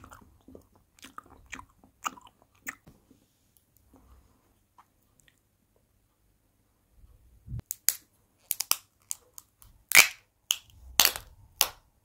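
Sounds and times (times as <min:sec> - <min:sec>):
plastic capsule clicks and snaps: 0:07.6 - 0:11.8.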